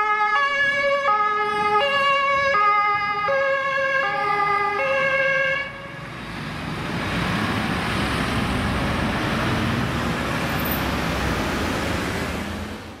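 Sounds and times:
fire engine two-tone siren: 0.0s - 6.2s
road noise: 0.0s - 13.0s
vehicle engines running: 5.8s - 13.0s.

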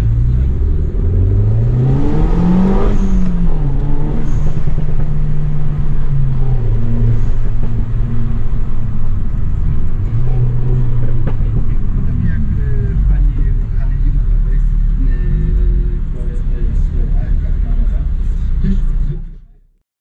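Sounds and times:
car engine revving: 0.0s - 19.5s.

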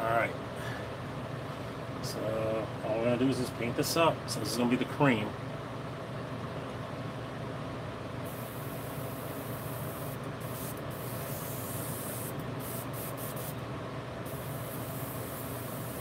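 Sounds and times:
airbrush spraying hiss: 8.3s - 13.6s, 14.3s - 16.0s.

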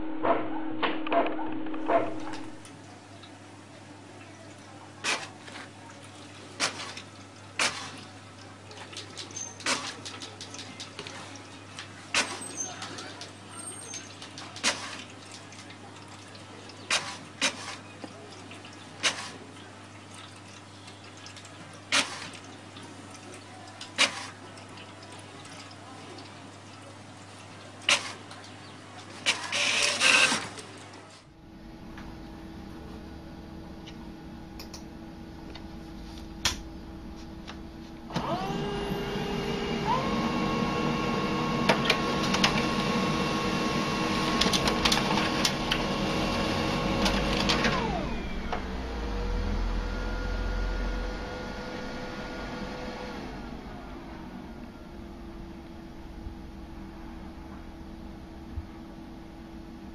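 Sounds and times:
laser printer whine: 0.0s - 2.6s, 29.2s - 30.6s, 38.1s - 55.6s
steady hum: 0.0s - 4.0s, 31.2s - 59.9s
printer clicking: 41.6s - 43.0s, 44.2s - 45.9s.

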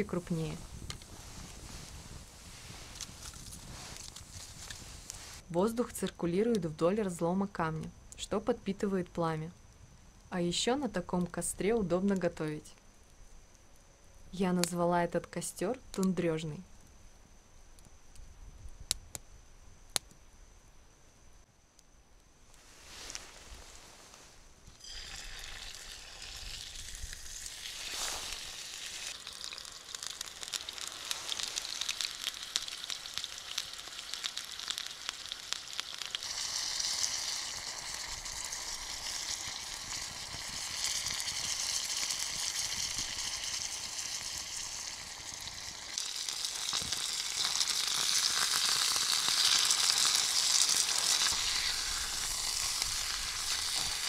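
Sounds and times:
wood fire crackling: 0.0s - 13.9s, 21.7s - 54.0s
meat sizzling in a pan: 24.8s - 54.0s.

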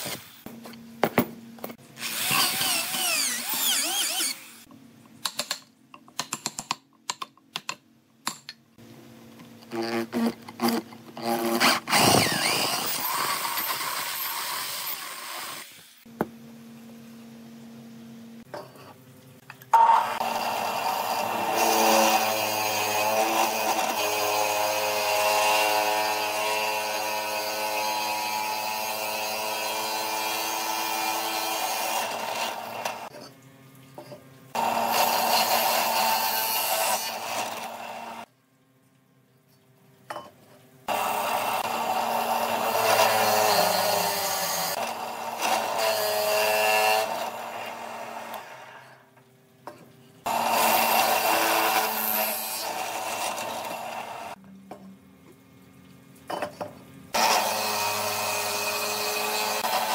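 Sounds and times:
electric drill boring into wood: 2.0s - 4.7s, 11.4s - 15.8s, 19.8s - 33.1s, 34.6s - 38.2s, 40.9s - 48.8s, 50.3s - 54.4s, 57.2s - 59.9s.

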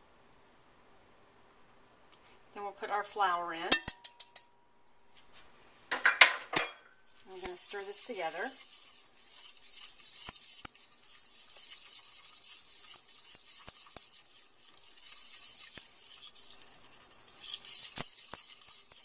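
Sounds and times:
whisk clicking on pan: 6.6s - 19.0s
whisk scraping saucepan: 6.6s - 19.0s.

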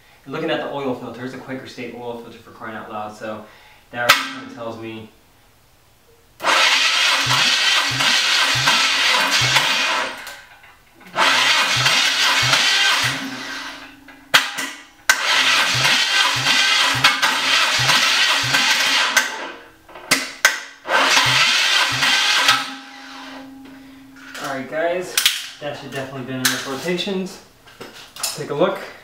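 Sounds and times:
starter motor cranking engine: 6.4s - 10.4s, 11.0s - 23.4s.

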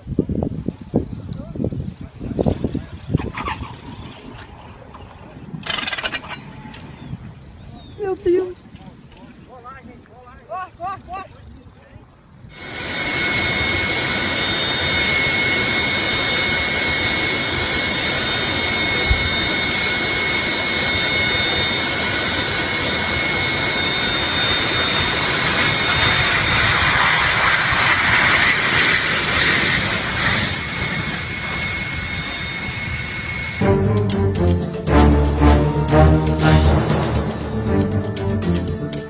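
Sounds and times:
jet engines running: 12.0s - 39.0s.

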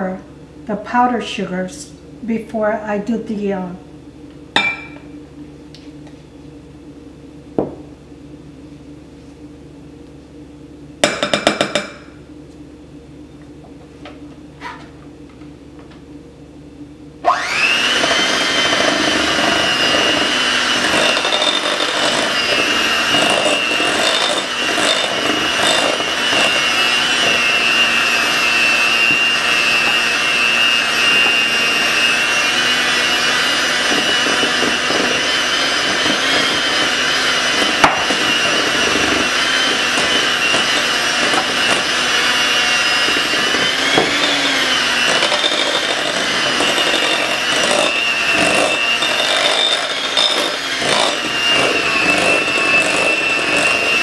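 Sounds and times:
electric hand mixer whining: 17.2s - 54.0s.

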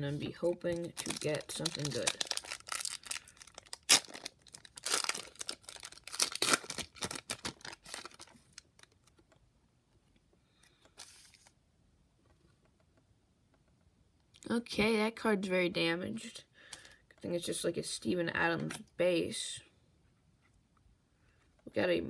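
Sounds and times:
wrapper tearing and crinkling: 0.5s - 9.0s.

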